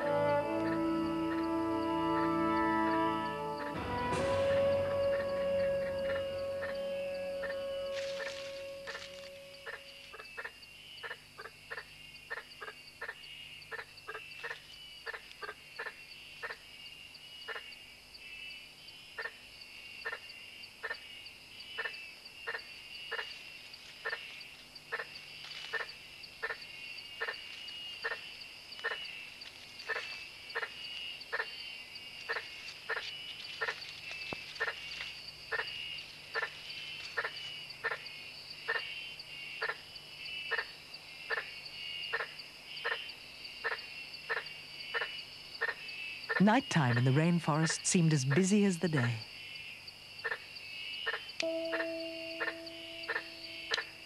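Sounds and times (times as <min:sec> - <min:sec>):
insect trill: 0:00.0 - 0:54.0
knocking frog calls: 0:40.4 - 0:46.4.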